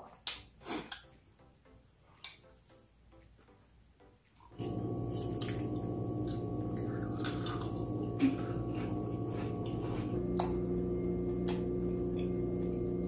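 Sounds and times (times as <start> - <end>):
background music held tones: 0.0 - 13.0
chip crunching and chewing: 4.4 - 10.6.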